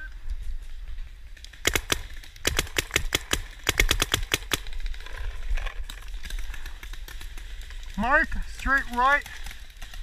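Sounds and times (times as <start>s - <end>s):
paintball marker firing: 1.4s - 4.9s.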